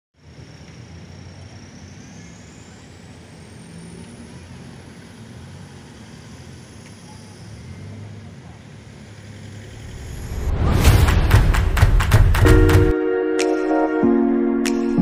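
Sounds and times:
faint high whine: 0:00.2 - 0:08.6
road traffic: 0:00.2 - 0:12.9.

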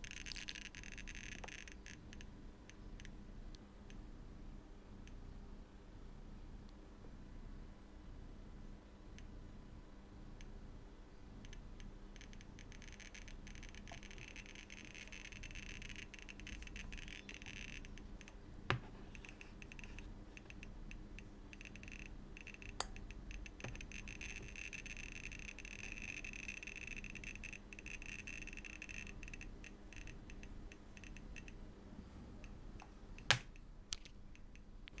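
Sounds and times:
geiger counter clicking fast: 0:00.0 - 0:03.2, 0:11.4 - 0:18.4, 0:19.1 - 0:31.6.

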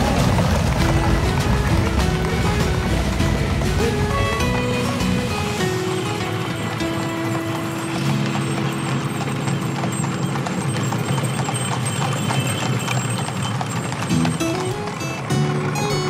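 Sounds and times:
background music with held notes: 0:00.0 - 0:10.4, 0:14.1 - 0:16.0
horse hooves clip-clopping on road: 0:00.0 - 0:16.0.

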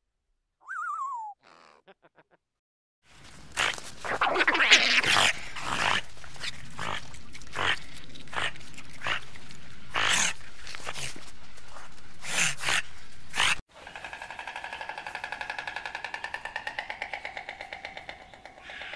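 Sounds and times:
animal giving hoarse calls: 0:03.6 - 0:11.2, 0:12.2 - 0:18.9.

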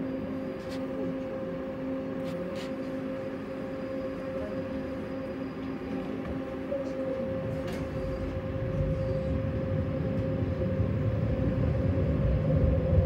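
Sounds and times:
tram electric hum and rumble: 0:00.0 - 0:13.0.

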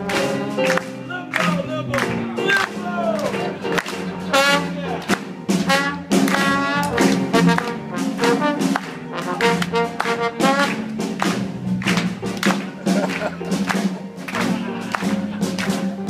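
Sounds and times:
trombone playing bluesy phrases: 0:00.0 - 0:11.3
live band rhythm: 0:00.0 - 0:16.0.

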